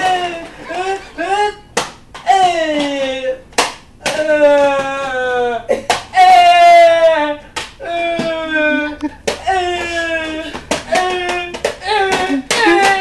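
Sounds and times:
hand slaps: 1.8 - 5.3, 7.6 - 8.4
person wailing high notes: 6.2 - 13.0.

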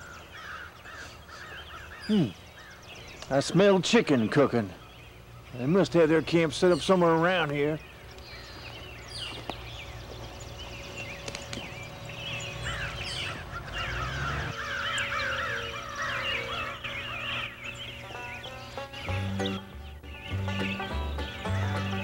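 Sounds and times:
steady low hum: 0.0 - 22.0
fowl warbling calls: 10.4 - 22.0.

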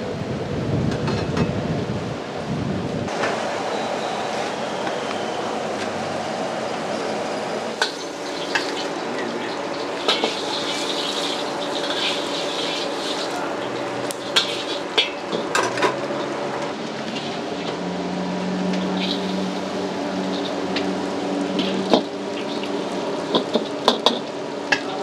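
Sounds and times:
noodles sizzling: 7.3 - 17.9, 18.6 - 25.0
steel spatula clanking on a wok: 7.8 - 15.8.

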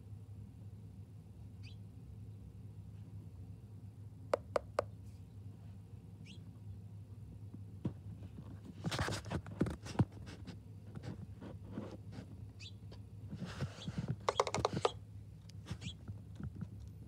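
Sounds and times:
bird beak tapping on feeder: 4.3 - 4.9, 14.3 - 15.0.

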